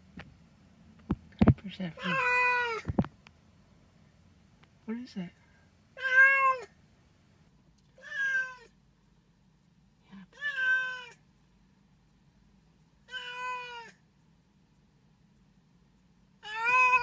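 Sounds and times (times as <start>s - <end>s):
cat meowing: 2.0s - 2.9s, 6.0s - 6.8s, 8.0s - 8.7s, 10.4s - 11.2s, 13.1s - 14.0s, 16.4s - 17.0s.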